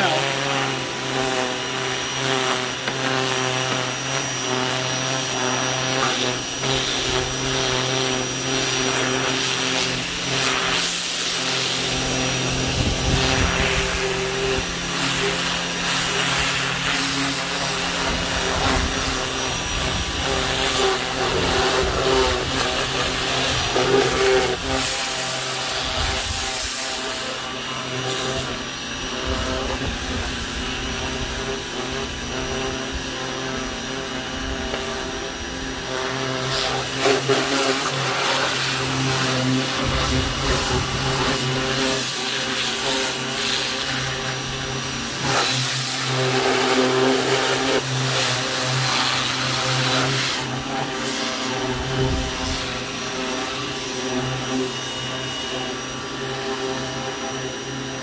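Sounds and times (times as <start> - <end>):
pressure washer motor humming: 0.0 - 58.0
water spray hissing on car: 3.8 - 28.5, 36.2 - 53.6.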